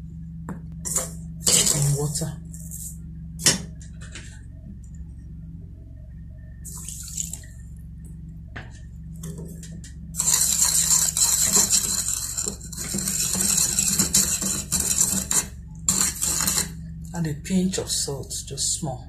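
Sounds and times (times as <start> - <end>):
spoon scraping sugar in bowl: 0.9 - 3.0, 10.2 - 16.8.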